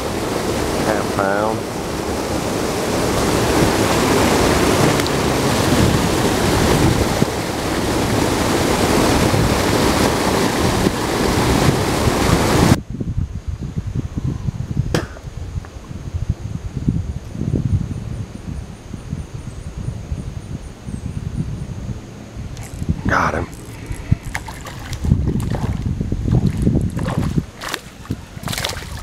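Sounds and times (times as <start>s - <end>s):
waterfall rushing: 0.0s - 12.8s
low bumps: 2.2s - 12.8s.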